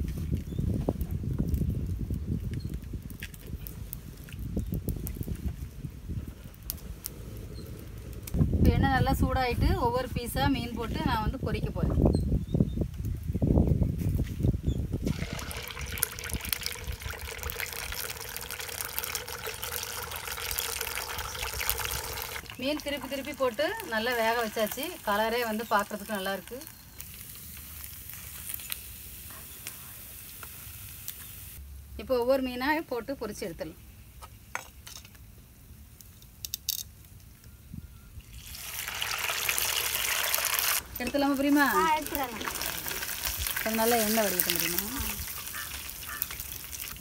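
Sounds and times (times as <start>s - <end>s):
fish sizzling in hot oil: 15.0s - 31.6s, 38.3s - 47.0s.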